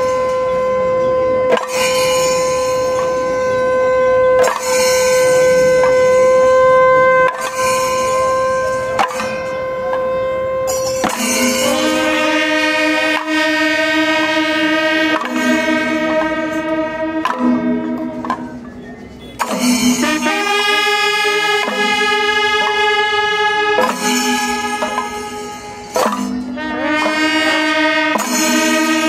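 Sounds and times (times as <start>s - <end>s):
wind instruments playing: 0.0s - 29.0s
sharp strokes: 10.7s - 18.4s.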